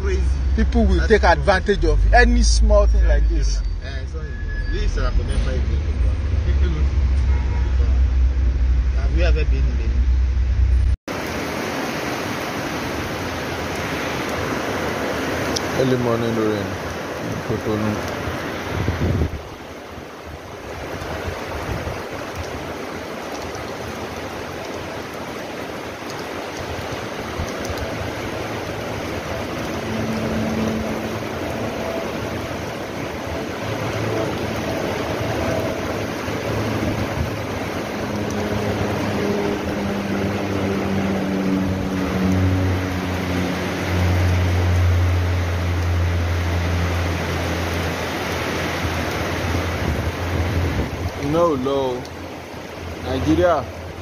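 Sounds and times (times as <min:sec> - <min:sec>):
low steady hum: 0:00.0 - 0:11.0
heavy rain on a tiled roof: 0:11.1 - 0:54.0.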